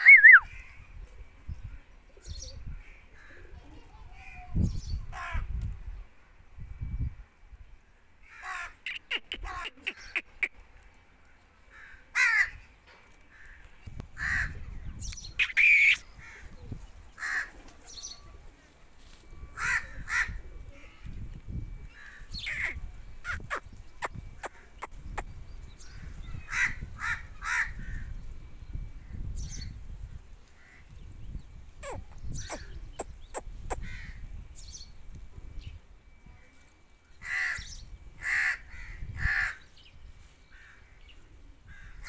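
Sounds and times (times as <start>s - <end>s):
parrot harsh calls: 0.0s - 0.5s, 8.4s - 10.5s, 15.4s - 16.0s, 22.5s - 24.1s, 31.8s - 32.7s.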